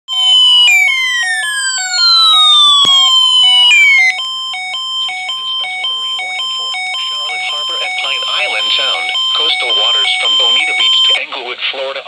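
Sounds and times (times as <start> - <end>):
alternating hi-lo alarm tones: 0.1 - 11.2
loud falling alarm sweeps: 0.1 - 11.2.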